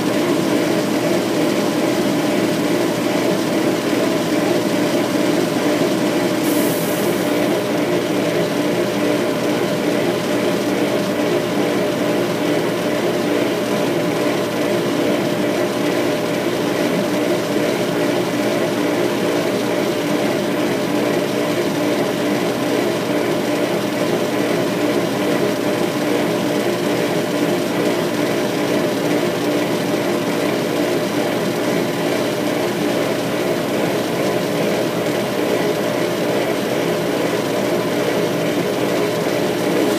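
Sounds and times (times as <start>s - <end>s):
laser engraver machine hum: 27.0s - 39.9s.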